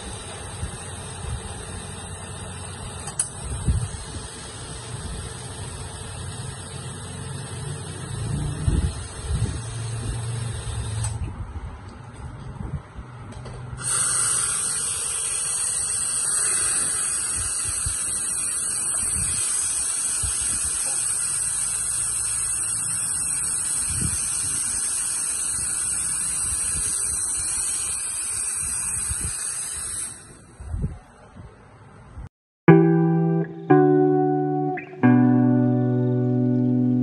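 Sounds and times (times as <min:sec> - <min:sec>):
espresso machine steam hiss: 0:00.0 - 0:11.0, 0:13.8 - 0:30.6.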